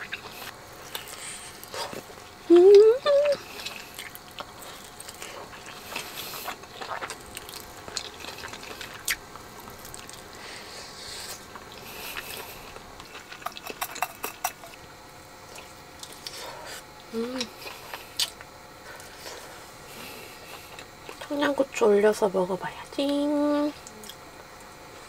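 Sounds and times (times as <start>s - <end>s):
wet chewing mouth sounds: 0.0s - 10.4s, 11.2s - 14.8s, 15.5s - 21.3s.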